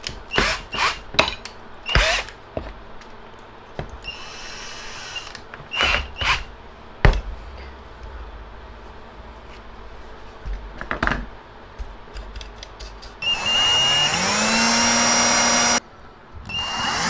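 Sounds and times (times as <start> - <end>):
cordless drill spinning: 1.9 - 2.3, 4.0 - 6.5, 13.2 - 15.8, 16.5 - 17.0.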